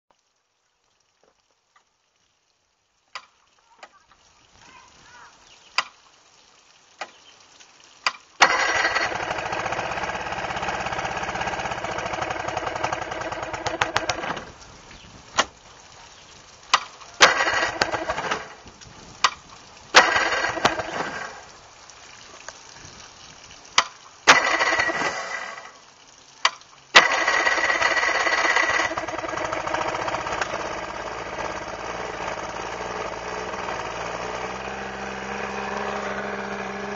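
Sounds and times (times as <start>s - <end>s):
sharp engine cracks: 8.0s - 14.6s, 16.6s - 21.6s, 23.7s - 25.8s, 26.4s - 36.9s
outboard motor running: 8.4s - 14.6s, 17.2s - 18.6s, 20.0s - 21.5s, 24.3s - 25.7s, 27.0s - 36.9s.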